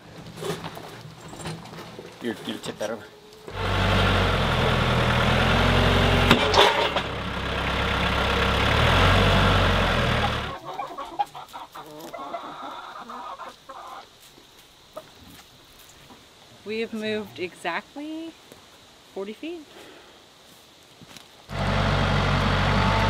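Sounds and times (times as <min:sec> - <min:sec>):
tractor diesel engine under load: 0:03.5 - 0:10.6, 0:21.5 - 0:23.0
chickens clucking: 0:10.2 - 0:14.2.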